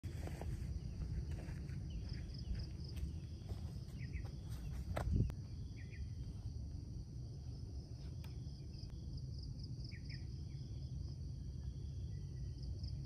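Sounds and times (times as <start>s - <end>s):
footsteps on grass: 0.0s - 5.4s
low outdoor rumble: 0.0s - 13.0s.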